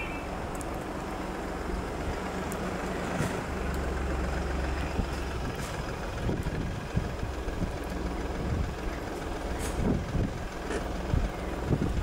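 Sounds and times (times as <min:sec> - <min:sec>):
engine idling hum: 0:00.0 - 0:12.0.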